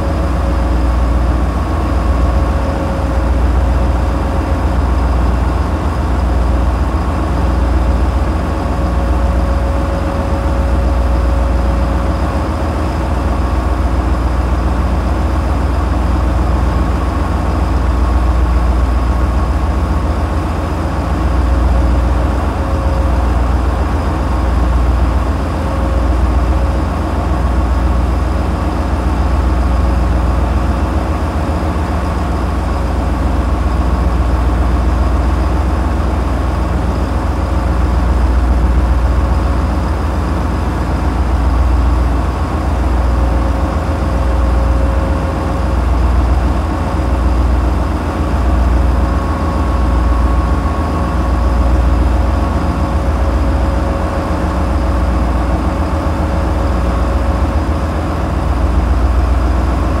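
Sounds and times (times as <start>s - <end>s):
boat engines droning: 0.0s - 60.0s.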